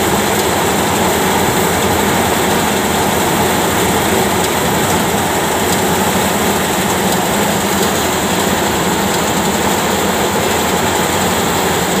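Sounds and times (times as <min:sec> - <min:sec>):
threshing drum spinning: 0:00.0 - 0:12.0
tractor diesel engine under load: 0:00.0 - 0:12.0.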